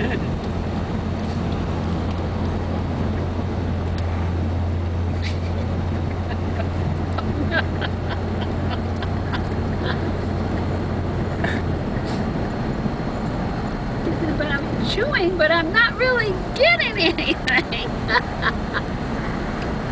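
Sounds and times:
car road noise inside cabin: 0.0 - 19.9.

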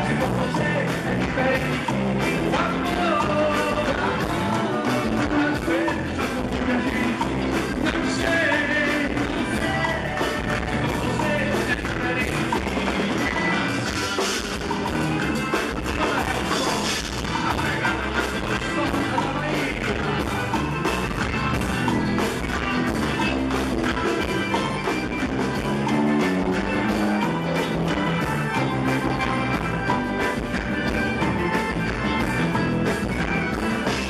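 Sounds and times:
man singing into a microphone: 0.0 - 14.1, 15.7 - 20.7
band playing upbeat music: 0.0 - 34.0.

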